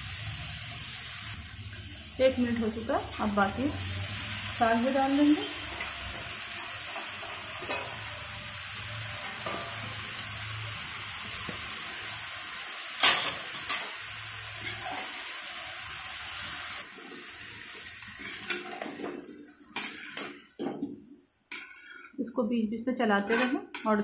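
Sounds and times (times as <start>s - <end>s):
greens sizzling in a pan: 0.0s - 20.4s
spatula scraping a pan: 14.6s - 15.2s, 16.9s - 20.6s, 21.5s - 22.2s, 23.2s - 24.0s.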